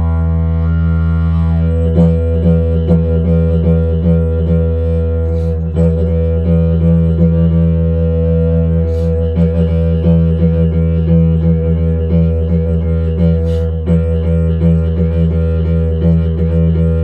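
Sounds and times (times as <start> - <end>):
didgeridoo drone: 0.0 - 17.0
breathy hisses: 8.8 - 9.2, 13.4 - 13.8.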